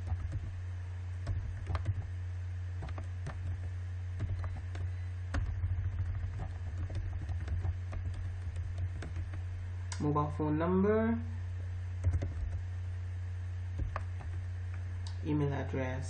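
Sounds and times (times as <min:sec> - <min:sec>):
low hum: 0:00.0 - 0:16.0
keyboard keys clicking: 0:01.2 - 0:02.1, 0:02.8 - 0:09.4, 0:12.0 - 0:12.6.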